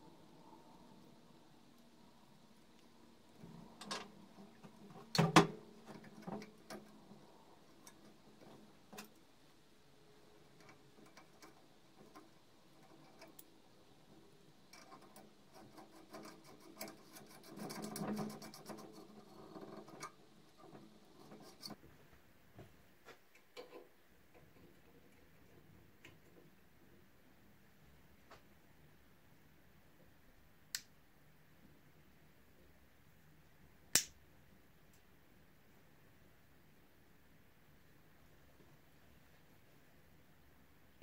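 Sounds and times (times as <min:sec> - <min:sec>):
small metal clicks and taps: 0:10.6 - 0:13.5.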